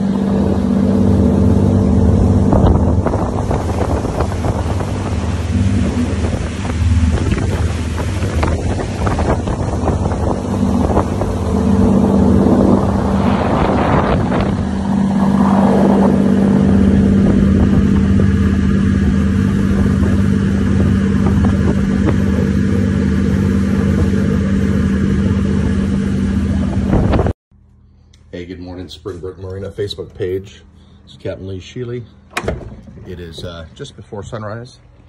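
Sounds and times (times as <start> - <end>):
boat engines droning: 0.0 - 27.3, 29.6 - 35.0
rushing churning wake: 0.0 - 27.3
wind on microphone: 0.0 - 27.4.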